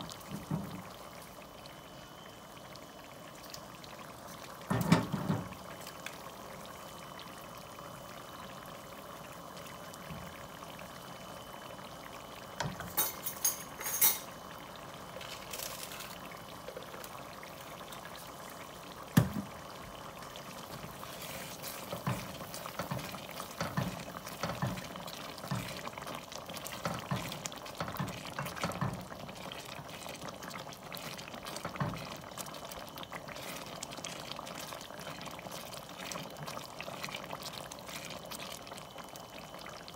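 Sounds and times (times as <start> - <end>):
sauce bubbling in a pot: 0.0 - 39.9
wooden spoon stirring in a pot: 20.6 - 38.8.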